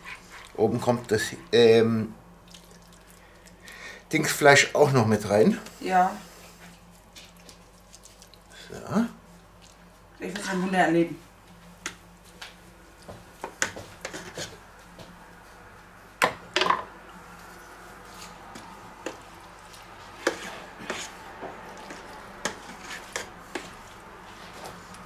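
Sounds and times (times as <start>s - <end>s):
faint steady hum: 0.0s - 25.0s
utensils tapping and scraping pans: 20.2s - 23.8s.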